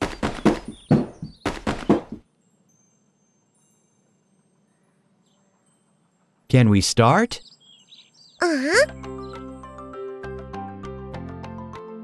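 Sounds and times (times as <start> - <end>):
cartoon thunks and clunks: 0.0 - 2.2.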